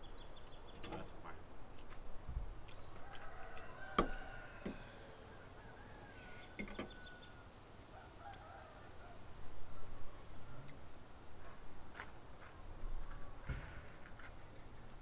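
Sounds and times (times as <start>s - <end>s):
birds chirping: 0.0s - 7.5s.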